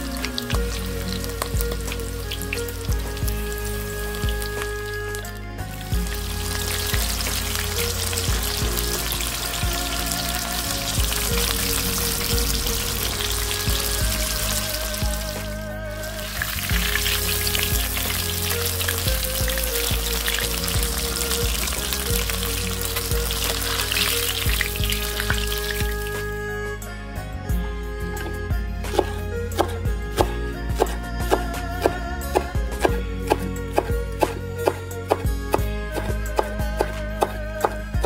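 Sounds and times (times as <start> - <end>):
shrimp sizzling in hot oil: 0.0 - 5.0, 5.8 - 26.2
background music: 0.0 - 38.0.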